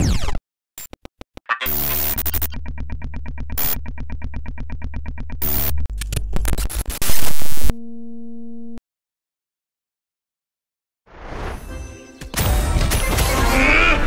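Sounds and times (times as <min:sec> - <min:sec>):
glitchy static and clicks: 0:00.0 - 0:07.8
held electronic tone: 0:00.8 - 0:05.9.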